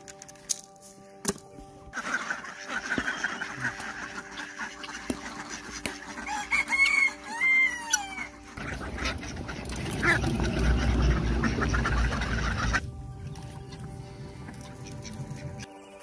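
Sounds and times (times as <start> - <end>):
rooster crowing: 6.3 - 8.4
low rumbling noise: 8.6 - 15.6.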